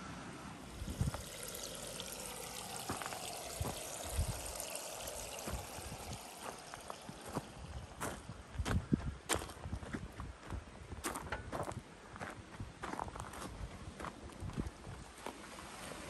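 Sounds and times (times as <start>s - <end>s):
water pouring and trickling: 0.6s - 8.3s, 15.1s - 16.0s.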